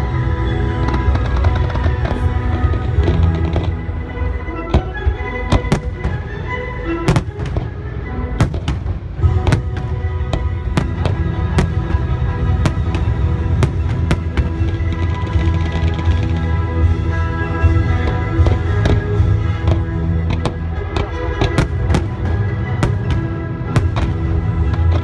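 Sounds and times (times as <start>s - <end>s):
fireworks bangs and cracks: 0.8s - 3.8s, 8.4s - 17.1s, 17.7s - 25.0s.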